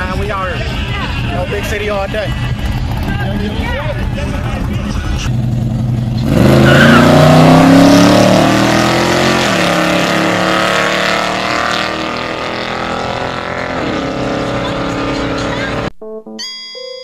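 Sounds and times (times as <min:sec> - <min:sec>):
car engine revving at full throttle: 0:00.0 - 0:15.9.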